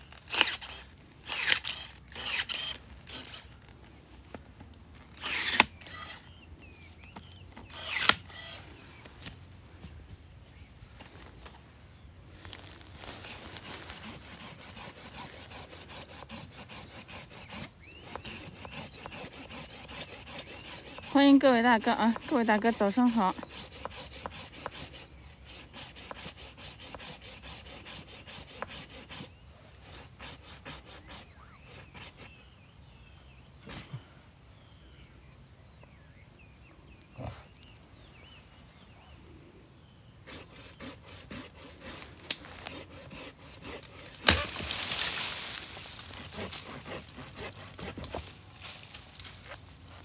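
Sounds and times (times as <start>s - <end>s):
hand saw scraping wood: 0.2s - 3.6s, 5.2s - 6.3s, 7.6s - 8.8s, 13.0s - 32.5s, 40.2s - 50.0s
rustling brush: 8.4s - 24.8s, 40.6s - 50.0s.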